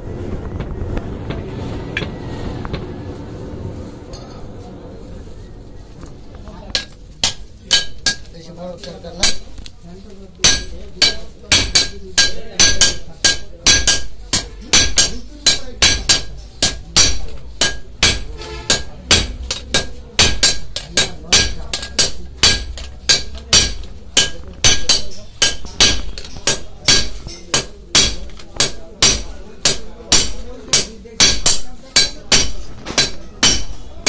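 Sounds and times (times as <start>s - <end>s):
hammer blows on anvil: 10.4s - 34.0s.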